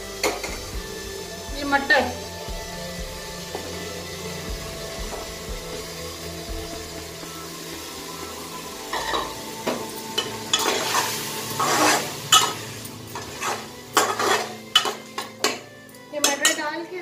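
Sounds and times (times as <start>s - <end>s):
frying sizzle: 0.0s - 17.0s
utensil scraping a pan: 10.2s - 15.6s.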